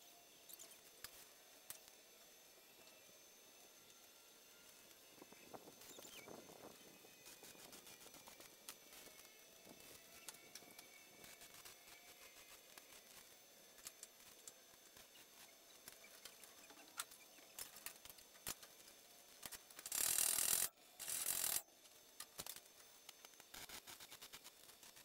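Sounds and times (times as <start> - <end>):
hissing welding arc: 19.5 - 21.6.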